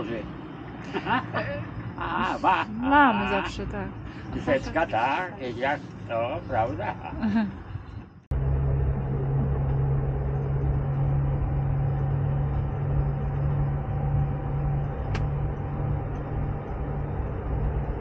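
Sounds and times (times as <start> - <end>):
bus engine drone: 0.0 - 18.0
road noise: 0.0 - 18.0.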